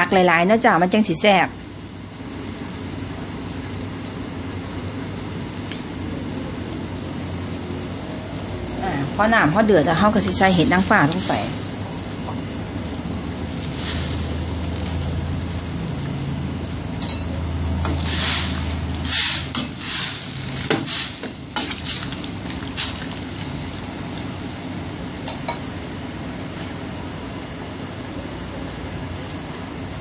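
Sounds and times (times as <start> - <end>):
steady hiss of boiling broth: 0.0 - 30.0
utensil stirring in pot: 9.9 - 23.6.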